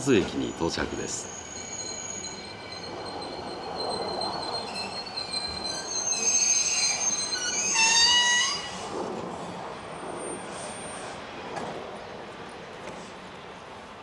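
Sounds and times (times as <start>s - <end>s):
train brakes squealing: 0.0s - 9.0s, 9.9s - 11.4s.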